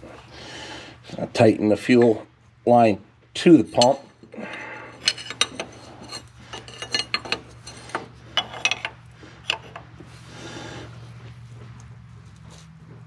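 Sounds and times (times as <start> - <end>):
steady low hum: 0.0 - 13.0
wrench clinking on metal: 3.7 - 9.8
rasping scrape: 5.0 - 11.4.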